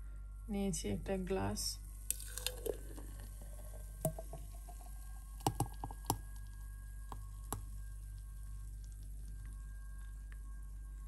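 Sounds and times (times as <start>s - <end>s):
faint steady hum: 0.0s - 11.0s
thick liquid pouring into glass: 2.1s - 6.4s.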